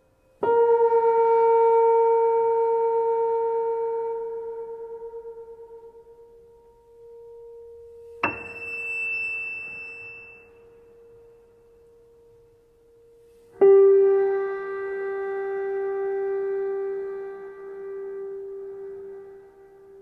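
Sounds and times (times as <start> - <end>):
struck low bell tone: 7.1 - 13.1
struck high bell tone: 8.2 - 11.9.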